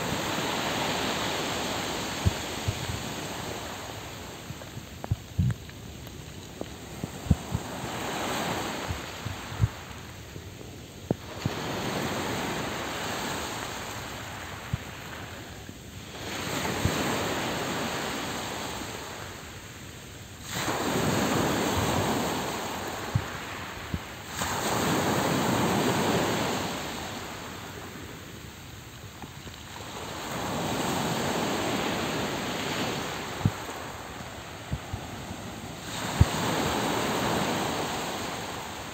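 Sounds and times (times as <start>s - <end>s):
sea waves breaking on pebbles: 0.0s - 10.0s, 20.4s - 28.1s, 29.3s - 38.9s.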